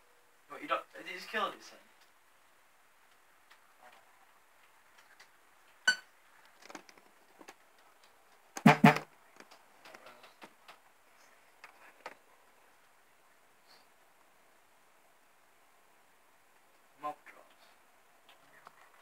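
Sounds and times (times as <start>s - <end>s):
faint hiss: 0.0s - 19.0s
film soundtrack clicks and pops: 4.6s - 10.9s.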